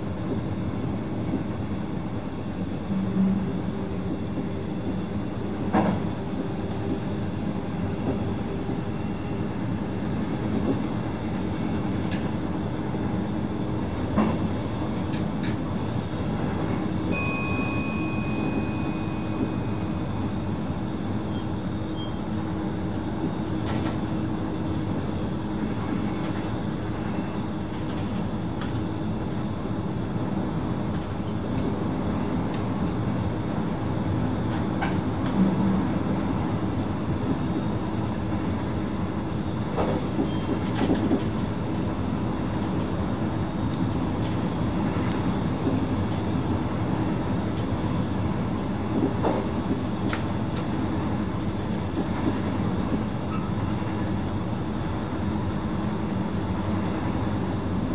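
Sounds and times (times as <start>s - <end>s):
train cab running rumble: 0.0s - 57.9s.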